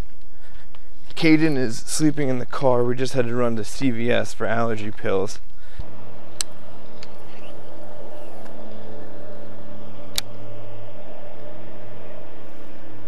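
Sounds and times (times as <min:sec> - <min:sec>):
low engine hum: 0:05.6 - 0:13.0.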